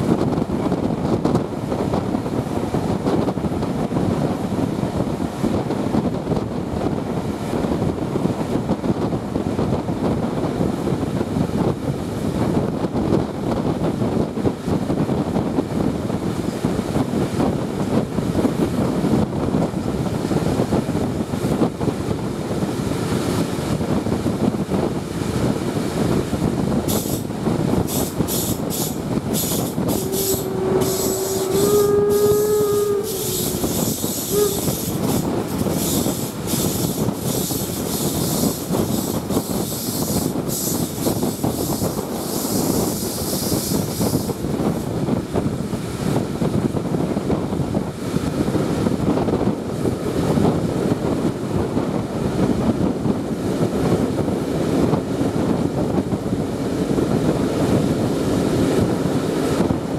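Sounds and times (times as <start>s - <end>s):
rushing air: 0.0s - 59.9s
train wheels rumbling on rails: 0.0s - 59.9s
short high-pitched bursts: 28.0s - 35.2s.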